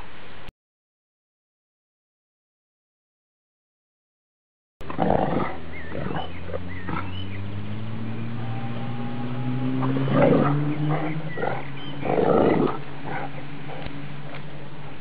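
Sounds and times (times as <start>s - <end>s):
dogs growling in play: 4.8s - 7.2s, 8.4s - 14.6s.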